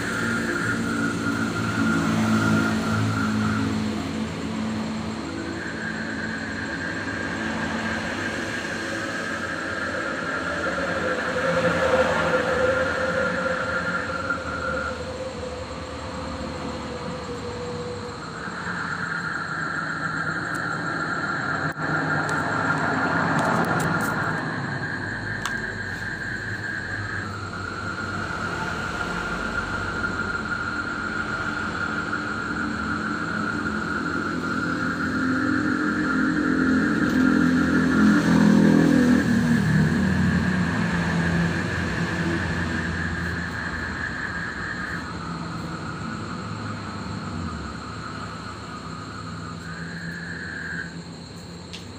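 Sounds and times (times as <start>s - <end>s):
motor vehicles passing: 0.0s - 18.7s, 20.8s - 50.8s
frogs calling: 0.0s - 51.9s.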